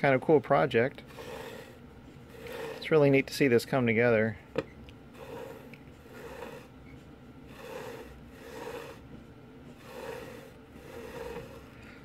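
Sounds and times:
wood scraping on wood: 1.0s - 3.2s, 5.1s - 11.8s.

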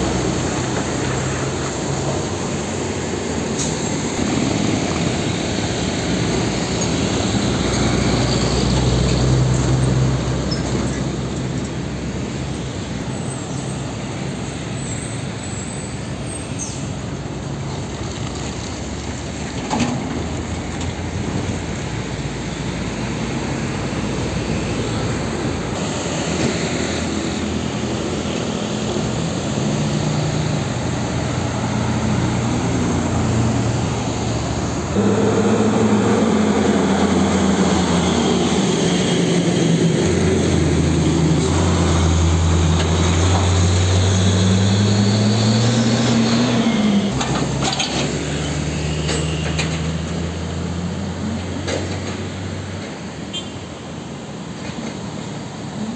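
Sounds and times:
road traffic: 0.0s - 55.9s
truck diesel engines passing: 0.0s - 55.9s.

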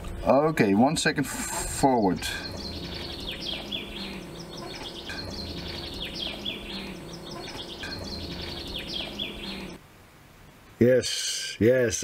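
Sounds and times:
faint low hum: 0.0s - 10.7s
songbird singing: 1.8s - 9.8s.

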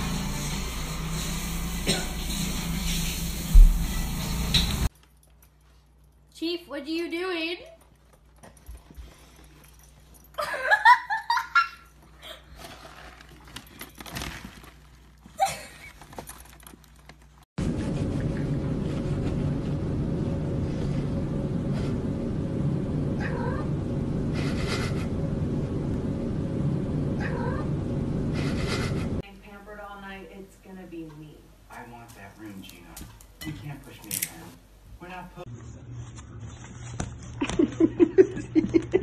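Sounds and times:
rustling: 12.2s - 18.1s
low hum: 17.6s - 29.3s.

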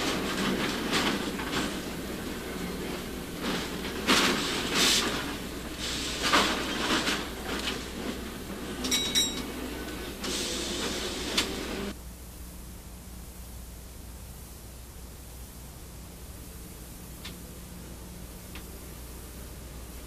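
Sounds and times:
steady hiss: 0.0s - 8.8s
streetcar clattering on rails: 0.0s - 12.0s.

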